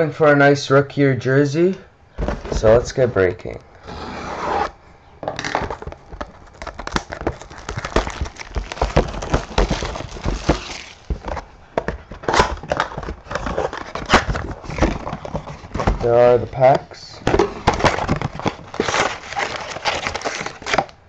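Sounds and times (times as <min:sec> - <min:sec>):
plastic wrap crinkling: 0:05.5 - 0:16.2, 0:17.6 - 0:21.0.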